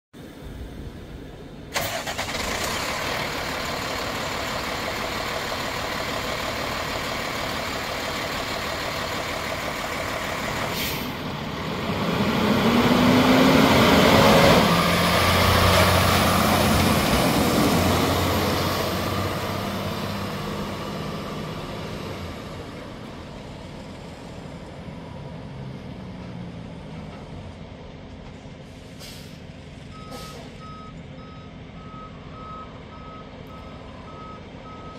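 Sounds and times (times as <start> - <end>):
diesel truck engine running: 0.2 - 34.9.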